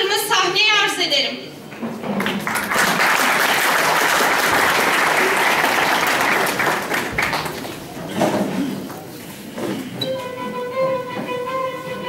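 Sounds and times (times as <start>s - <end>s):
audience applauding: 2.2s - 8.0s.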